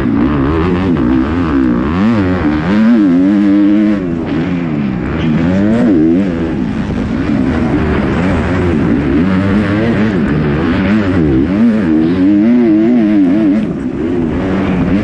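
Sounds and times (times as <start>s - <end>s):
motocross engine revving: 0.0s - 15.0s.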